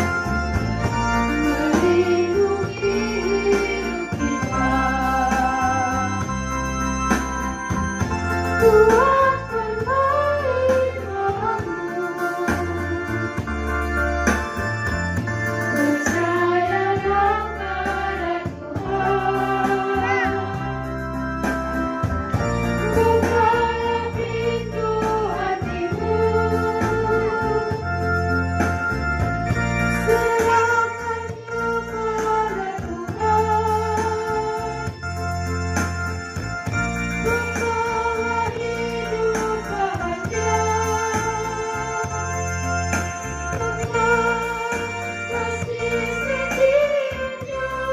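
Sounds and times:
organ-style keyboard chords: 0.0s - 47.9s
choir singing a hymn: 1.3s - 6.2s, 15.7s - 21.2s, 22.8s - 28.1s, 30.1s - 34.9s, 37.2s - 42.3s, 43.5s - 47.9s.

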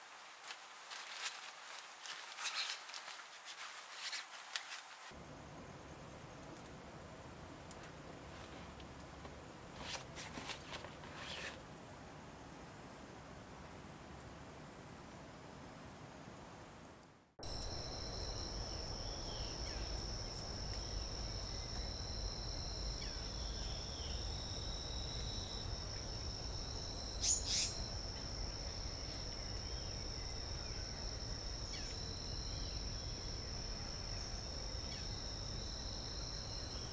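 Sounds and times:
insects trilling: 17.4s - 36.9s
sharp chirp: 27.2s - 27.8s.

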